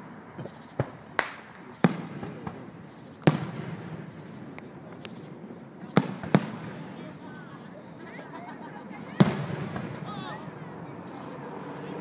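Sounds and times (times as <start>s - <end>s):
fireworks bangs: 0.0s - 12.0s
faint firework pops: 0.4s - 7.1s, 9.2s - 10.2s.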